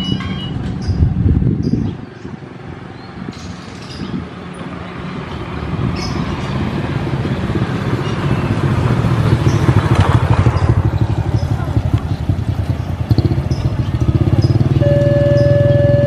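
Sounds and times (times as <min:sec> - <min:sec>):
vehicle engine rumbling: 0:00.0 - 0:16.0.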